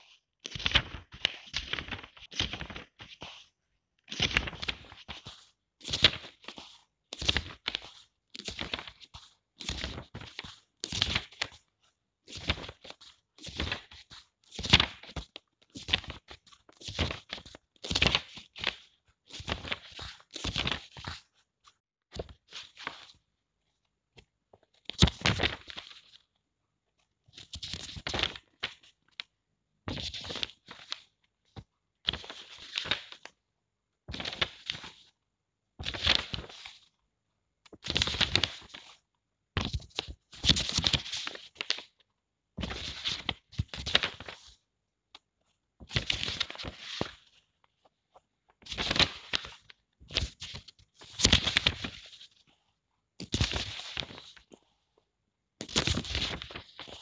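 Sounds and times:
book pages turning: 0.4s - 3.5s, 4.1s - 11.7s, 12.3s - 21.3s, 32.1s - 33.3s, 34.1s - 35.1s, 35.8s - 36.9s, 37.7s - 39.0s, 39.6s - 42.0s, 42.6s - 44.6s, 45.9s - 52.6s, 53.2s - 54.7s, 55.6s - 57.0s.

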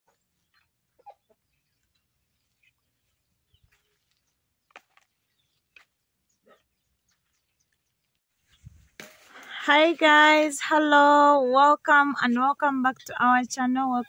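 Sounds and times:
chicken clucks: 0.9s - 1.7s.

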